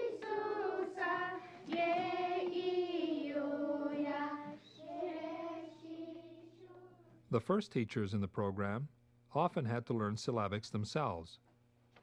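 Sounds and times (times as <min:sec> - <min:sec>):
children chanting in unison: 0:00.0 - 0:07.0.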